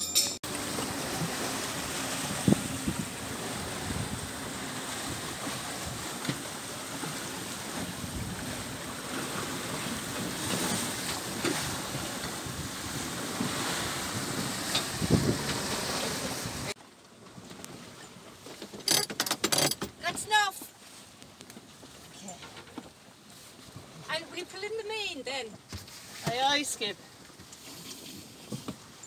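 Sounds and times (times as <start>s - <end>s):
waves rushing along hull: 0.0s - 16.8s
wind buffeting microphone: 0.9s - 6.2s, 6.9s - 9.1s, 9.8s - 16.7s.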